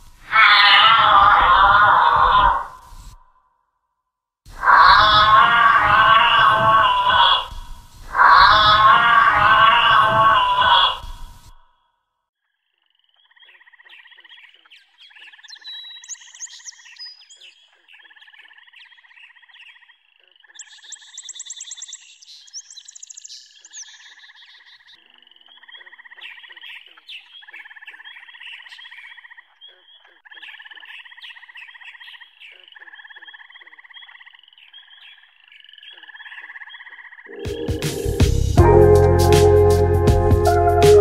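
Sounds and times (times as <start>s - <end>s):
frogs calling: 4.5s - 11.2s, 12.6s - 38.1s.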